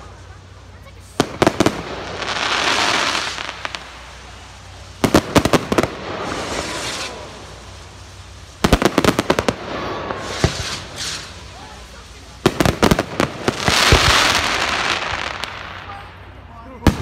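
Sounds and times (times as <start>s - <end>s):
fireworks bangs: 0.0s - 17.0s
fireworks crackling hiss: 0.0s - 17.0s.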